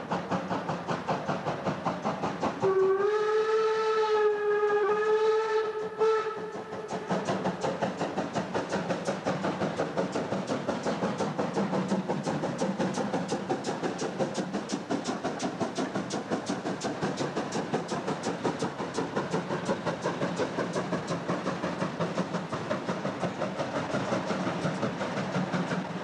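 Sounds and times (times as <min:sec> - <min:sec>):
steam locomotive chuffing: 0:00.0 - 0:26.0
train rumble: 0:00.0 - 0:26.0.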